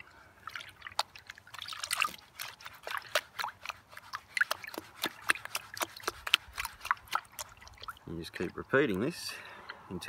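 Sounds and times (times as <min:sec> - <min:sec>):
water splashing into a tub: 0:00.0 - 0:08.8
plops and drips of water: 0:00.0 - 0:09.1.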